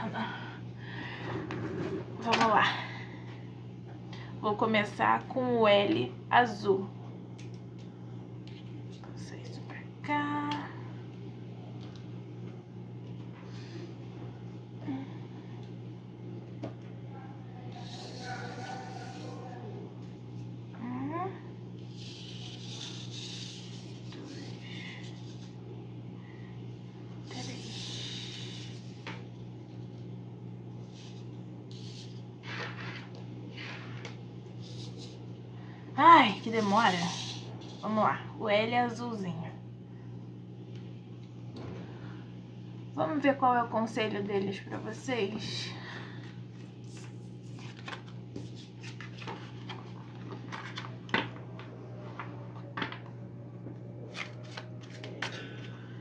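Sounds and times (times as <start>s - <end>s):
low hum: 6.0s - 56.0s
cards being shuffled: 46.5s - 51.3s, 54.1s - 55.7s.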